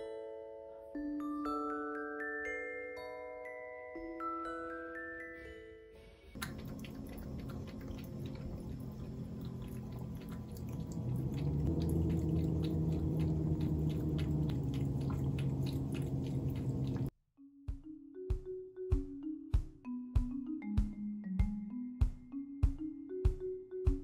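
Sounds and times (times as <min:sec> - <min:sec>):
cat lapping water: 0:06.4 - 0:17.1
steady low hum: 0:06.4 - 0:17.1.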